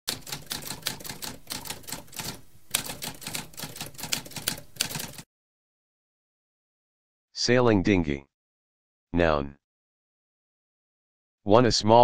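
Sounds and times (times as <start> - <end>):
typewriter typing: 0.1 - 5.2.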